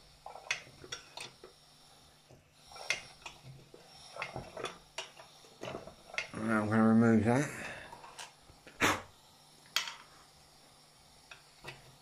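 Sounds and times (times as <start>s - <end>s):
lantern hand pump working: 0.0s - 6.7s, 11.3s - 12.0s.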